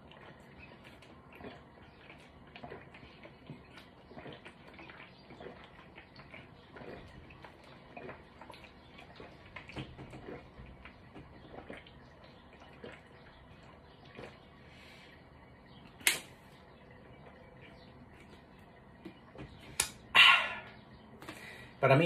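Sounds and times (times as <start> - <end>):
person swallowing: 20.0 - 20.8.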